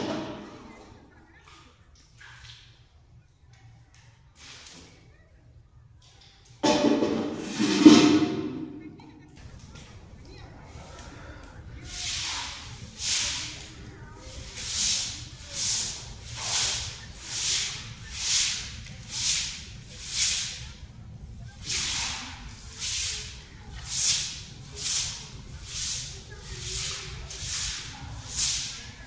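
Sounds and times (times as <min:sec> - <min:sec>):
broom swishing on wet stone: 0:11.8 - 0:29.0.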